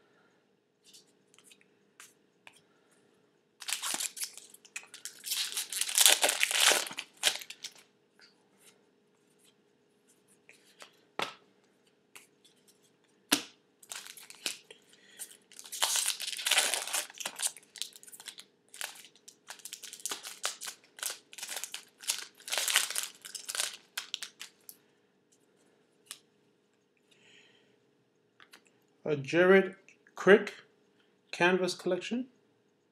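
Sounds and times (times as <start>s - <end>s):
foil wrapper tearing and crinkling: 3.6s - 7.8s, 13.8s - 24.7s.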